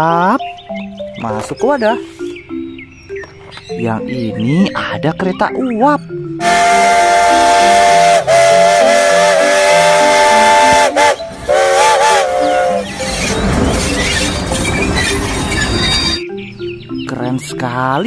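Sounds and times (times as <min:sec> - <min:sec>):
steam locomotive whistle: 0:06.4 - 0:16.2.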